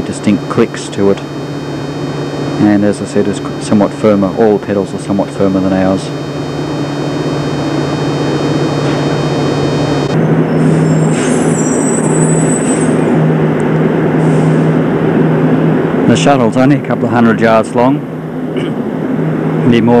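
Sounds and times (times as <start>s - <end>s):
high-pitched squeal: 5.6s - 13.2s.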